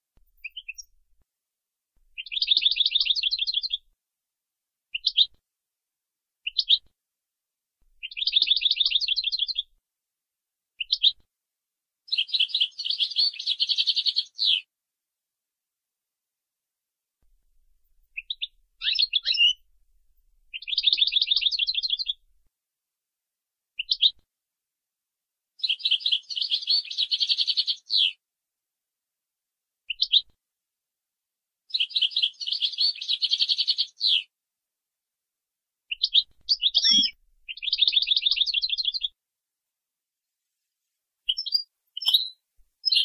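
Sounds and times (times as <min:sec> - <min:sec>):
goldfinch twittering and trilling: 0:08.0 - 0:09.6, 0:18.2 - 0:19.6, 0:20.5 - 0:22.2, 0:35.9 - 0:39.1, 0:41.3 - 0:43.0.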